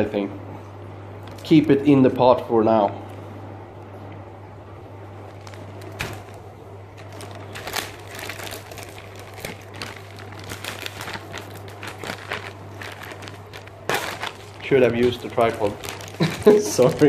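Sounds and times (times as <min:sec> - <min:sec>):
steady low hum: 0:00.0 - 0:17.0
plastic bag crinkling: 0:01.2 - 0:01.8, 0:05.0 - 0:17.0.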